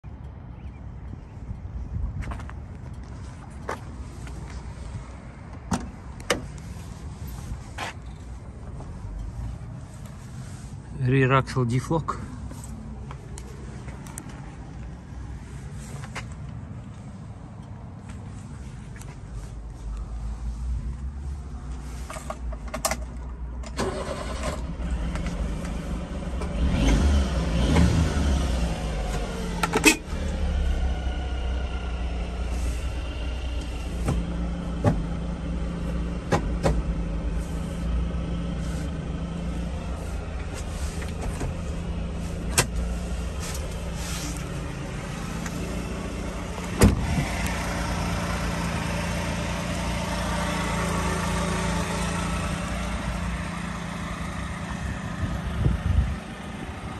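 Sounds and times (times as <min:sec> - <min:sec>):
truck engine starting and idling: 0:21.3 - 0:56.9.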